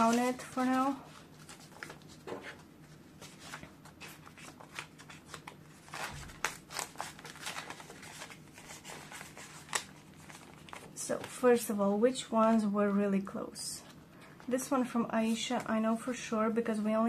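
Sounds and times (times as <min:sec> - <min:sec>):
banknotes and plastic rustling: 0:00.0 - 0:11.7.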